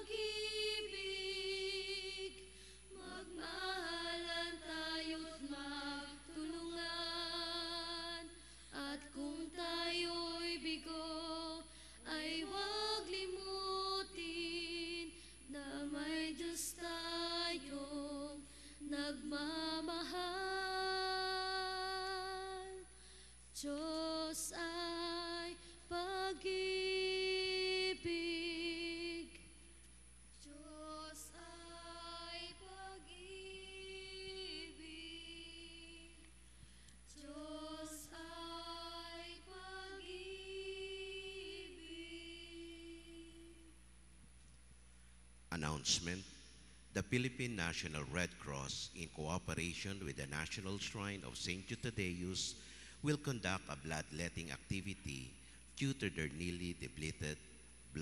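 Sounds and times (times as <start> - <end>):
woman singing a hymn: 0.0 - 29.6, 30.4 - 36.4, 37.1 - 43.8.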